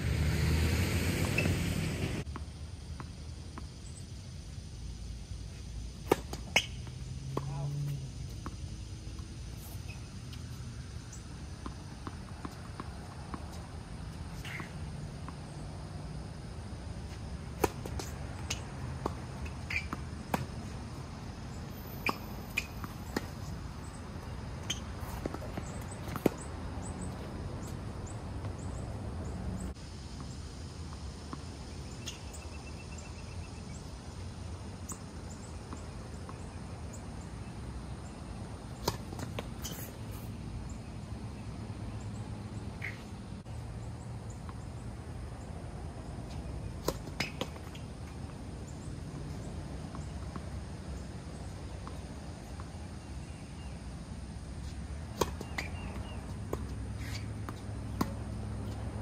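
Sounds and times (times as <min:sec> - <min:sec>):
tennis ball hits: 0:01.2 - 0:02.3, 0:06.0 - 0:09.2, 0:17.2 - 0:20.6, 0:24.2 - 0:26.4, 0:38.8 - 0:40.2, 0:46.8 - 0:48.4, 0:55.1 - 0:58.8.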